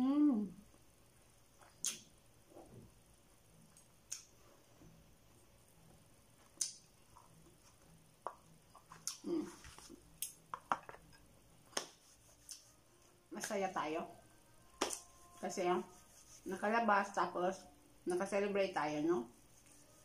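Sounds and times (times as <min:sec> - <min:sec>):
chewing mouth sounds: 0:01.6 - 0:02.1.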